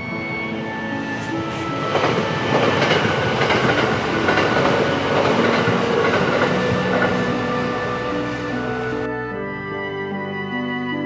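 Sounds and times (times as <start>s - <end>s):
train wheels clattering on rails: 1.1s - 8.9s.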